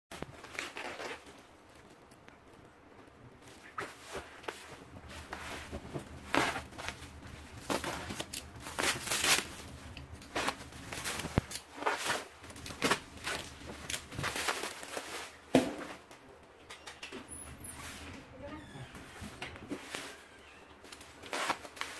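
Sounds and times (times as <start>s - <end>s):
plastic wrapping crinkling and tearing: 0.2s - 2.1s, 3.4s - 15.5s, 19.7s - 21.9s.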